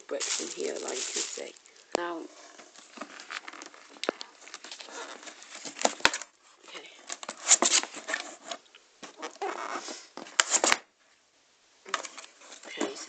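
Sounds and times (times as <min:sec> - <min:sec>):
cardboard rustling and scraping: 0:00.0 - 0:06.3, 0:07.0 - 0:10.8.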